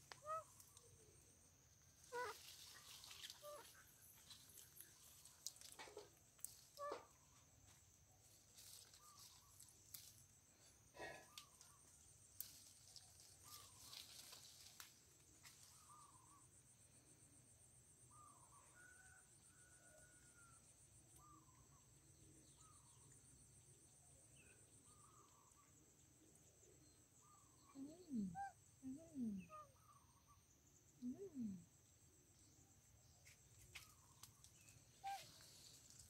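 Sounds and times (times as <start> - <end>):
insect buzz: 0.0 - 11.7
rustling leaves and snapping branches: 2.2 - 6.9, 8.2 - 10.3, 11.4 - 15.8, 33.3 - 36.0
bird chirps: 33.2 - 35.8.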